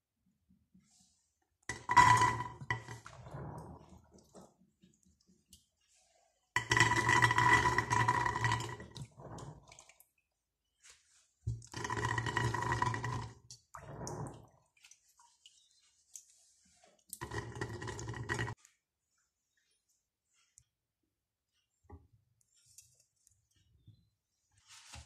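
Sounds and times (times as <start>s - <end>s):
water dripping: 6.6s - 10.4s, 11.6s - 16.4s.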